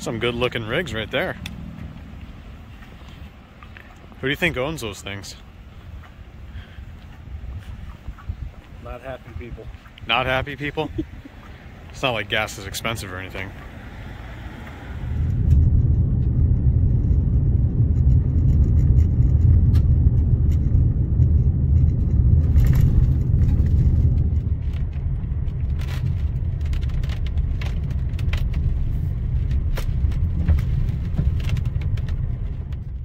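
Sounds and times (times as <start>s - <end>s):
tyre and road noise rumble: 0.0s - 33.0s
stones ticking: 18.0s - 33.0s.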